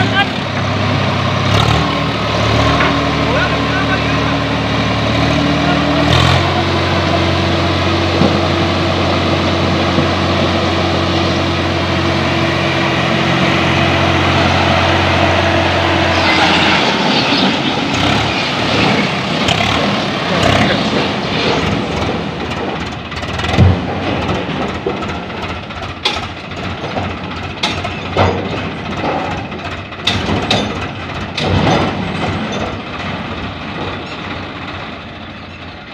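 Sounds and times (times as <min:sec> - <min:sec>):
tractor diesel engine running: 0:00.0 - 0:35.9
sharp knocks and clatter: 0:17.9 - 0:35.0.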